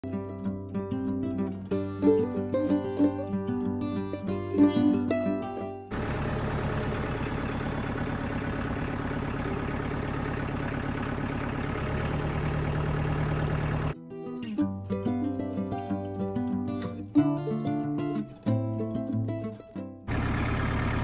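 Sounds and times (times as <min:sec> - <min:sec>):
engine idling: 0:05.9 - 0:14.0, 0:20.1 - 0:21.0.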